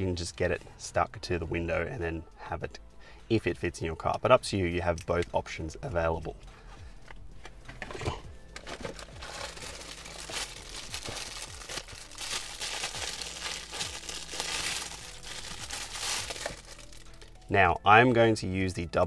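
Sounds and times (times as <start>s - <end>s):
plastic bag crinkling: 8.5s - 17.4s.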